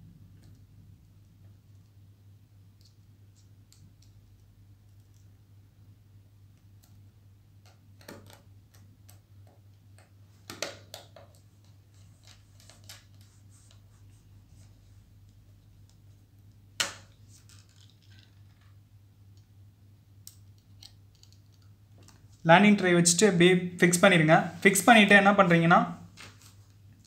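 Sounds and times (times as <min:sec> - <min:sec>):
faint low hum: 0:00.0 - 0:10.5.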